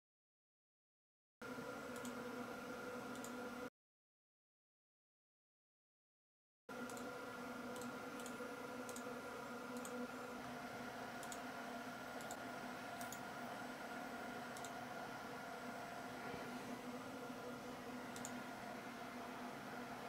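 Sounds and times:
server cooling fans humming: 0:01.4 - 0:03.7, 0:06.7 - 0:20.0
computer mouse clicking: 0:01.9 - 0:02.2, 0:03.1 - 0:03.4, 0:06.8 - 0:07.1, 0:07.7 - 0:09.1, 0:09.7 - 0:10.0, 0:11.2 - 0:11.5, 0:12.2 - 0:13.3, 0:14.5 - 0:14.8, 0:18.1 - 0:18.4.

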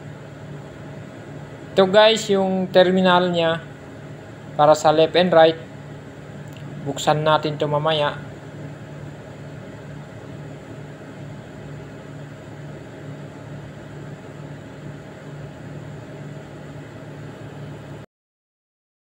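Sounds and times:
low machine hum: 0:00.0 - 0:18.1.

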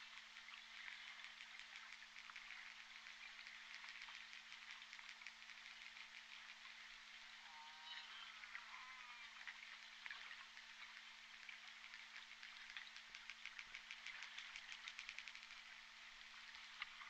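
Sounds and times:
rapid whale clicks: 0:00.0 - 0:07.4, 0:09.3 - 0:17.0
low steady hum: 0:00.0 - 0:17.0
killer whale calls: 0:07.4 - 0:09.4.

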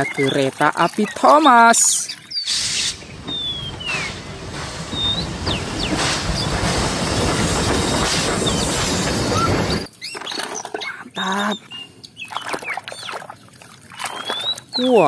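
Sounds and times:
high squealing chirps: 0:01.9 - 0:11.8
steam locomotive rumble and hiss: 0:02.5 - 0:09.9.

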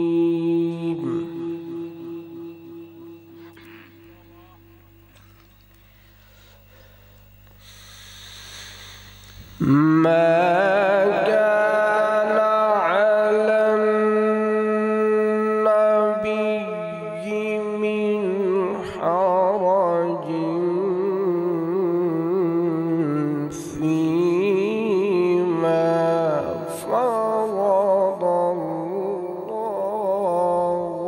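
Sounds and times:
man reciting melodically: 0:00.0 - 0:05.1, 0:09.6 - 0:31.0.

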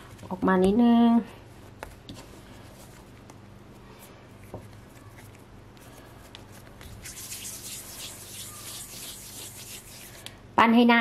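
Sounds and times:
hands rubbing bread dough: 0:04.2 - 0:10.3.

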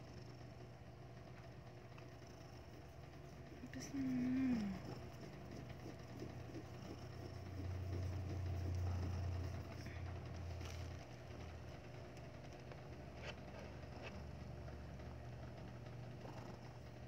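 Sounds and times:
cat purring: 0:02.0 - 0:11.0, 0:16.0 - 0:17.0.

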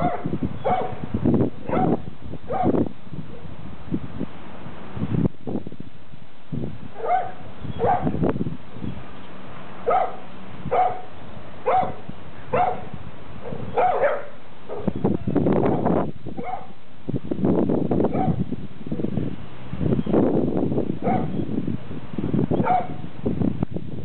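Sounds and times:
dogs barking: 0:00.0 - 0:01.0, 0:01.6 - 0:02.8, 0:07.0 - 0:08.2, 0:09.8 - 0:15.0, 0:16.4 - 0:16.8, 0:18.1 - 0:18.4, 0:21.0 - 0:21.4, 0:22.6 - 0:23.0.

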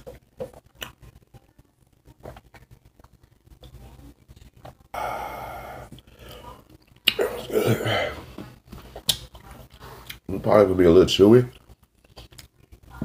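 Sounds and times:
mouth clicks from eating: 0:07.0 - 0:07.3.

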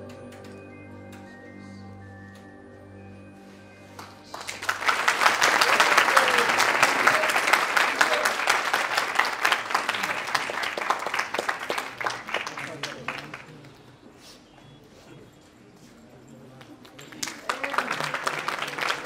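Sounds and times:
held music notes: 0:00.0 - 0:05.6
audience applauding: 0:04.0 - 0:13.8, 0:16.8 - 0:19.0.

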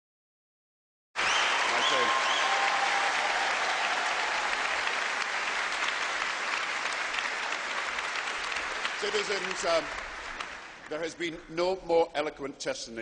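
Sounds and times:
audience applauding: 0:01.2 - 0:11.4.

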